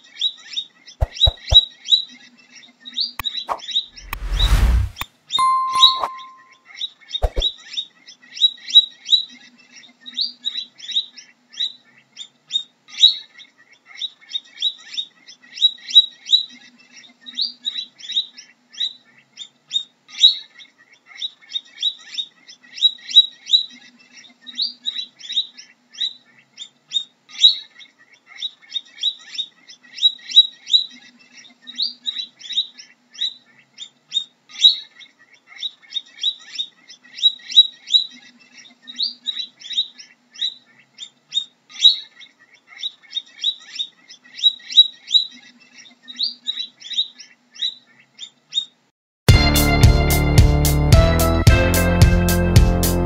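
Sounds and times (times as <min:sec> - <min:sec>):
guinea pig squeaking: 0:00.2 - 0:02.1.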